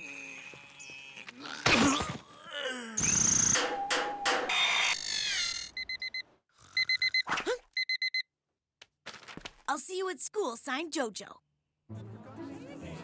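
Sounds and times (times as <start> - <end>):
electronic alarm beeping: 3.0 - 4.4, 5.6 - 8.3.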